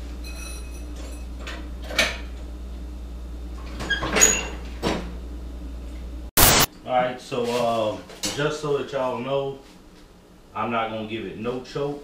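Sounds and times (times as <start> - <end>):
metallic ring: 0.2 - 1.3.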